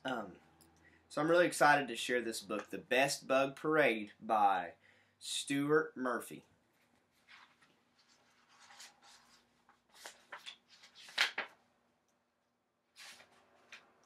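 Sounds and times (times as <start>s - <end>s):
book pages rustling: 6.7s - 11.6s, 13.0s - 14.0s.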